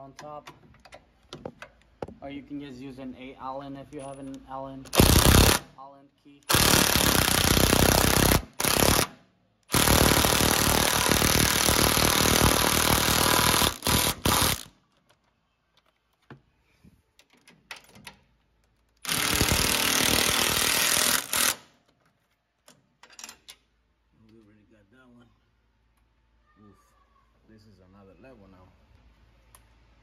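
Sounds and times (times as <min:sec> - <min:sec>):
impact wrench hammering: 0:19.0 - 0:21.7.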